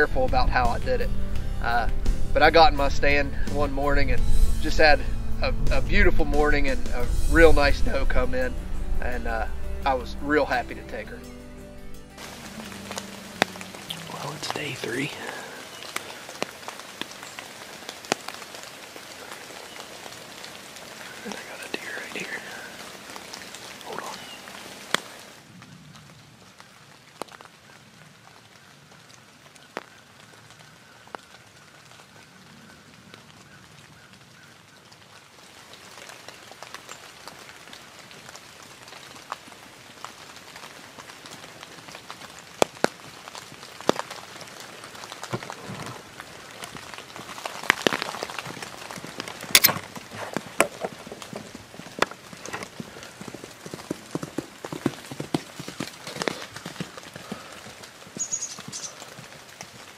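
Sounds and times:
light rain pattering on leaves: 12.2s - 59.9s
horse hoofbeats: 47.2s - 59.9s.

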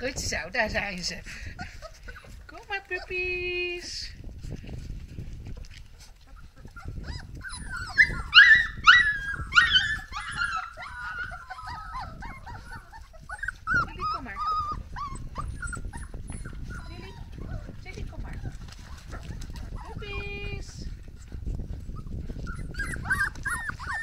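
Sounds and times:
puppies whimpering and squealing: 0.0s - 3.9s, 4.5s - 24.0s.

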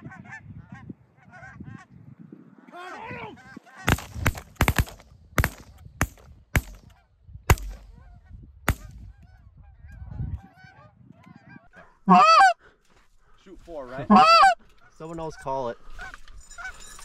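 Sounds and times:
shotgun shots: 3.8s - 6.9s, 7.5s - 8.0s
geese honking: 10.4s - 12.6s, 13.9s - 16.7s.

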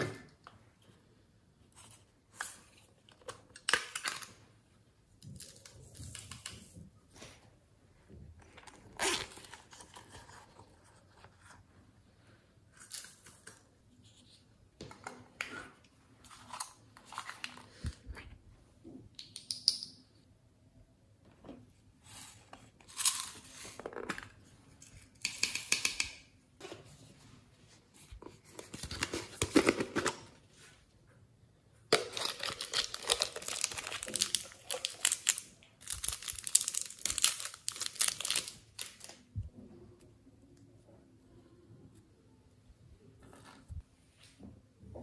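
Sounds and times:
thin plastic crinkling: 31.9s - 39.3s.

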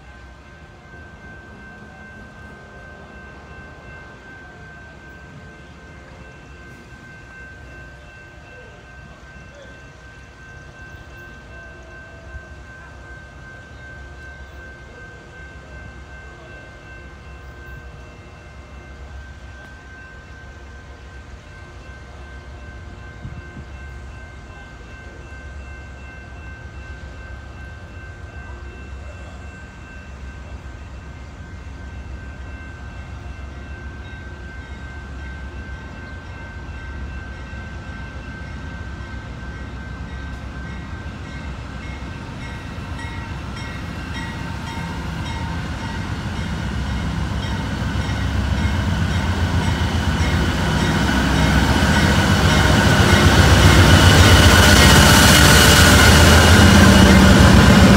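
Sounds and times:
diesel locomotive engine and wheels: 0.0s - 57.9s
regular ringing bell: 0.0s - 57.9s
steady high tones: 0.0s - 57.9s.

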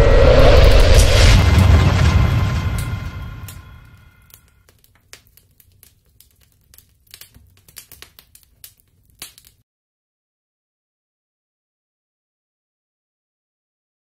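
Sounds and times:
deep boom with ringing tail: 0.2s - 4.2s
faint crackles and ticks: 4.3s - 9.6s.

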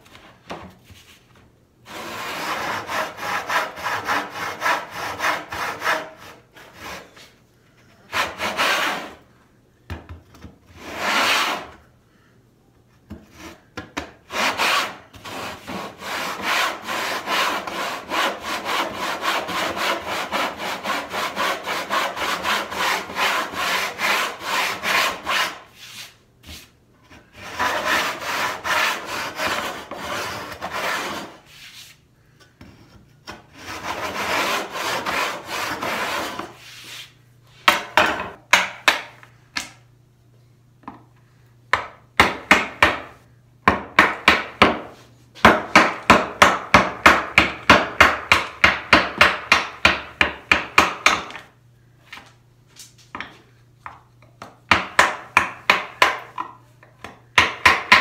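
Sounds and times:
hand saw cutting wood: 1.9s - 7.2s, 8.1s - 9.2s, 10.8s - 11.8s, 14.2s - 25.8s, 27.3s - 31.5s, 33.5s - 36.6s.

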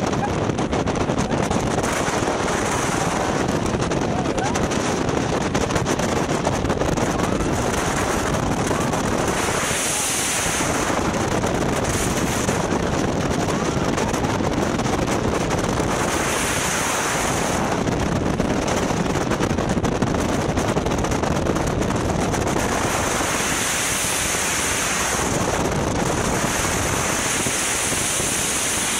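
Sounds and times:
rush of wind and water: 0.0s - 28.9s
wind buffeting microphone: 0.0s - 28.9s.

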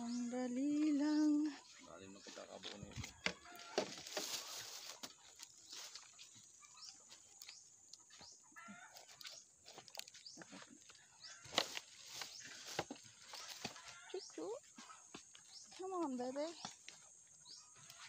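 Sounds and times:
rustles: 2.3s - 7.6s, 9.0s - 15.7s.

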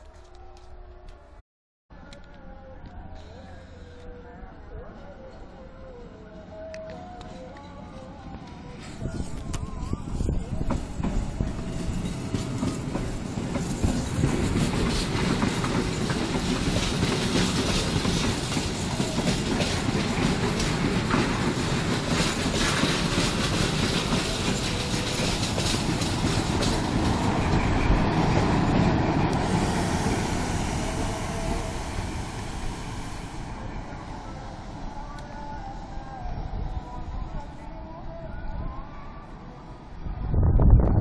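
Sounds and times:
locomotive engine rumbling: 8.3s - 37.2s.

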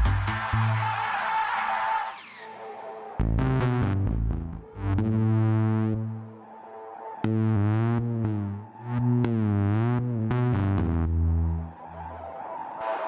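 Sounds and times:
dark pulsing synth arpeggio: 3.2s - 13.0s.

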